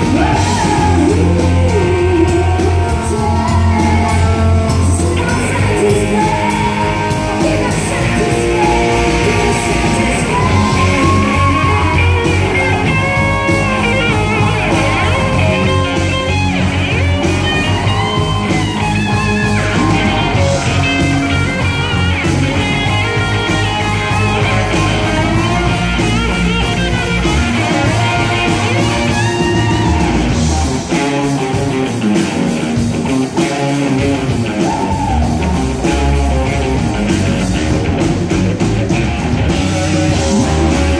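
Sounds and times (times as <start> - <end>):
rock band playing: 0.0 - 40.9
woman singing: 0.1 - 12.4.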